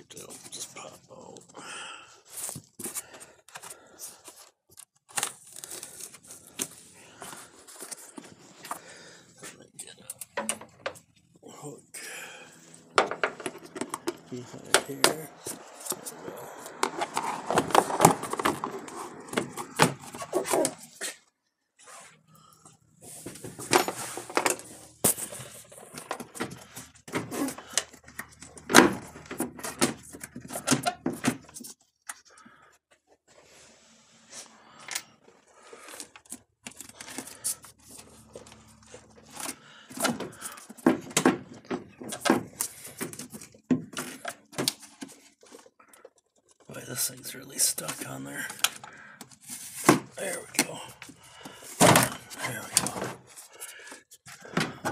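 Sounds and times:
plastic panel knocking and scraping: 0:13.0 - 0:20.8.

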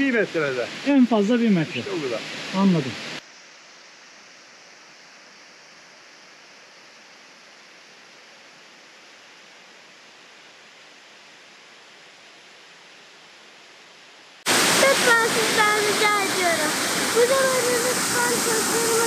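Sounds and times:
waterfall rushing: 0:00.0 - 0:03.2, 0:14.4 - 0:19.0.

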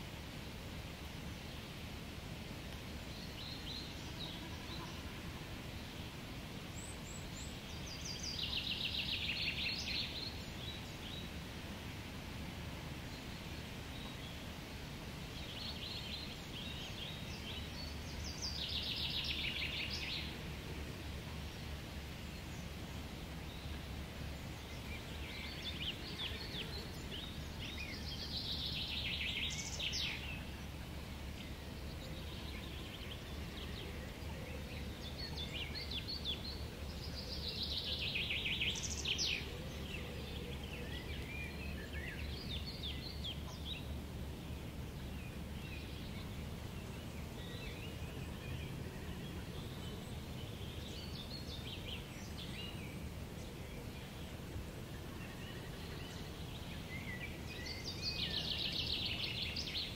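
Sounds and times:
songbirds singing: 0:00.0 - 0:59.9.

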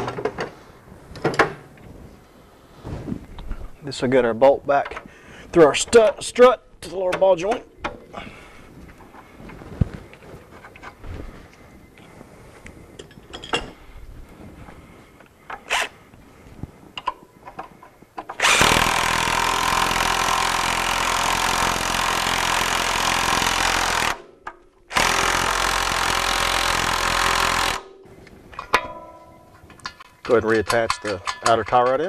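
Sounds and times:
power tool running nut down: 0:15.7 - 0:15.9, 0:18.4 - 0:24.2, 0:24.9 - 0:27.8.

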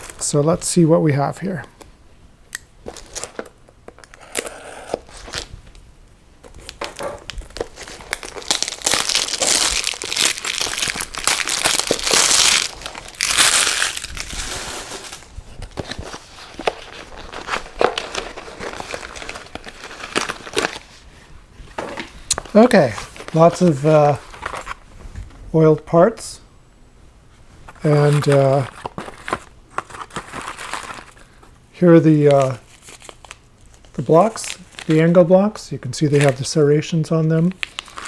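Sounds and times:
plastic bag crinkling: 0:06.5 - 0:20.9, 0:27.8 - 0:31.3, 0:32.2 - 0:35.1, 0:37.5 - 0:38.0.

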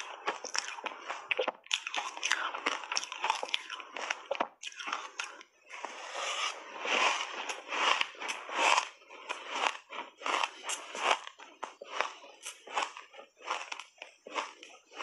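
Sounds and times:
crunching and chewing shaved ice: 0:00.0 - 0:15.0.

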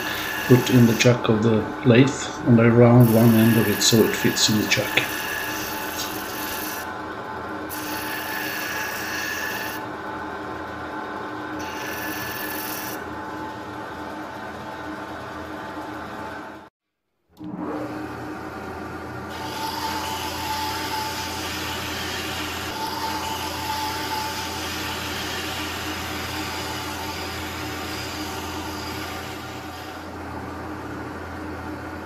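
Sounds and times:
chisel cutting spinning wood: 0:00.0 - 0:06.9, 0:07.7 - 0:09.9, 0:11.6 - 0:13.2, 0:19.2 - 0:30.1
wood lathe motor humming: 0:00.0 - 0:07.0, 0:07.7 - 0:09.9, 0:11.6 - 0:13.7, 0:17.4 - 0:30.2.

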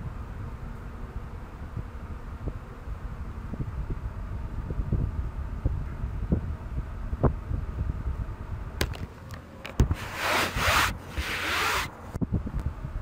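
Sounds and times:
rubbing strokes: 0:09.9 - 0:11.9.

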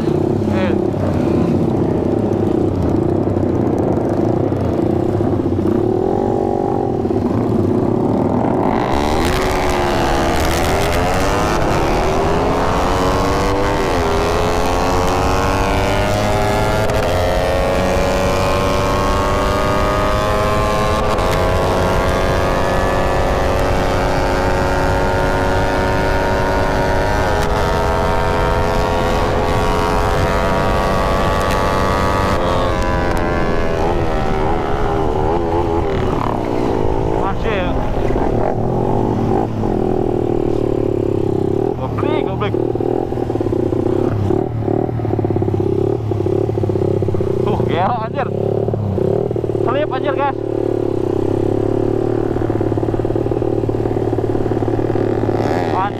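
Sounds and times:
wind on microphone: 0:00.0 - 0:41.9
motorcycle engine revving: 0:00.0 - 0:55.9.

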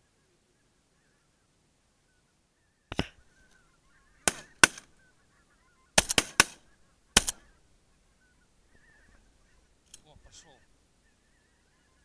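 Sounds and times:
geese honking: 0:03.2 - 0:12.0.

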